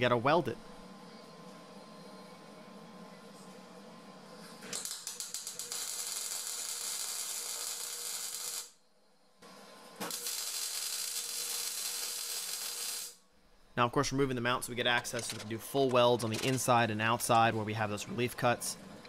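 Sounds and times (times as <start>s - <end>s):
arc welding crackling sizzle: 4.4s - 8.8s, 10.0s - 13.2s.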